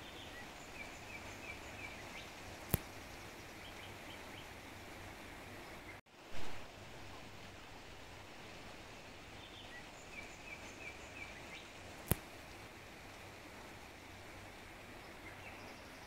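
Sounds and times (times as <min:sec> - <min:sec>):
low steady hiss: 0:00.0 - 0:16.0
sharp click: 0:02.7 - 0:02.9, 0:12.0 - 0:12.3.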